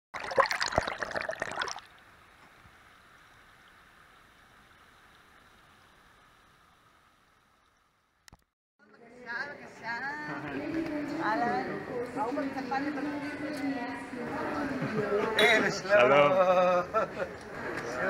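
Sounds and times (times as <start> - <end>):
underwater stream bubbling: 0.2 - 6.6.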